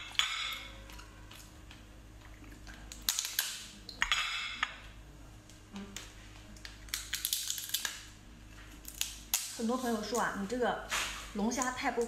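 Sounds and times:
lobster shell cracking: 2.8 - 3.7, 6.6 - 8.1, 8.8 - 9.6.

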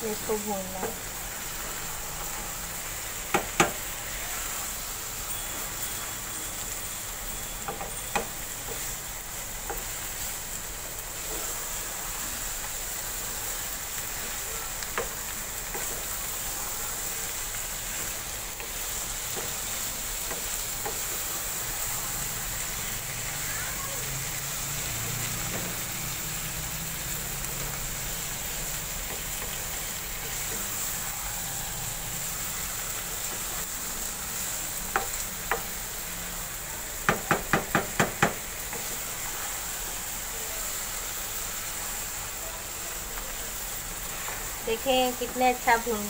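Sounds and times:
vegetables sizzling in oil: 0.0 - 46.0
spatula knocking against pan: 37.1 - 38.4.

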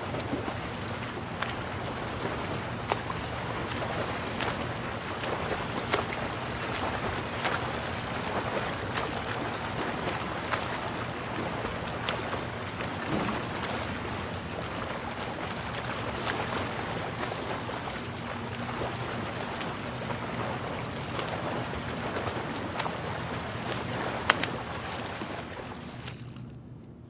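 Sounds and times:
water rushing: 0.0 - 26.2
golf club hitting ball in water: 24.2 - 24.6.

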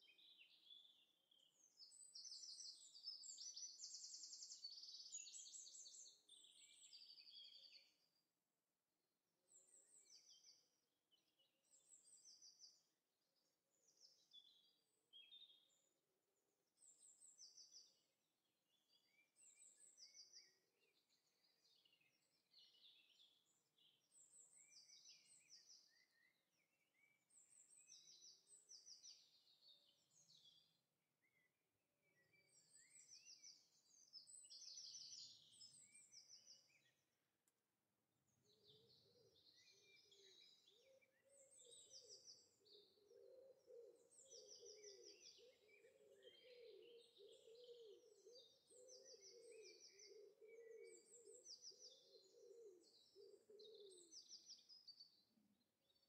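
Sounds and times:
birds chirping and trilling: 38.7 - 55.2.

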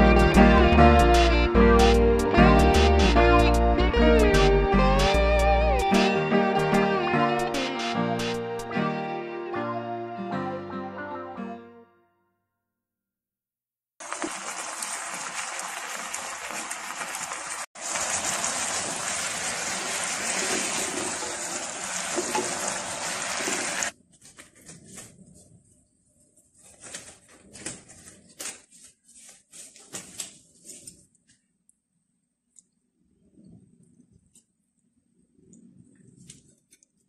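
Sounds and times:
water boiling hard in a pot: 14.0 - 24.0.

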